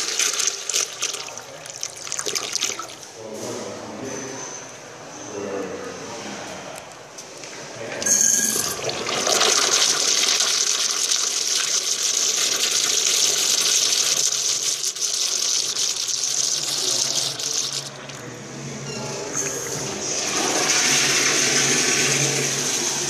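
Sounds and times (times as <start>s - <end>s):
urinal flushing: 0.0s - 3.1s, 7.8s - 18.4s, 19.2s - 23.0s.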